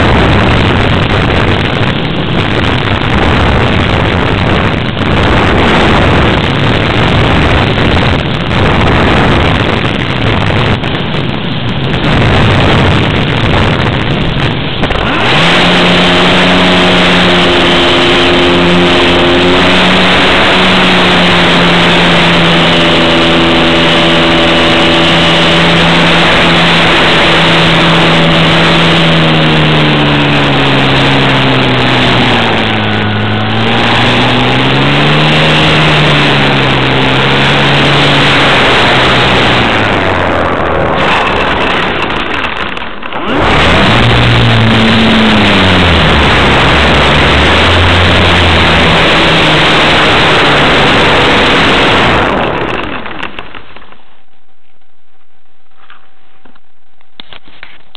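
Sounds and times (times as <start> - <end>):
model airplane motor buzzing: 12.1 - 53.4.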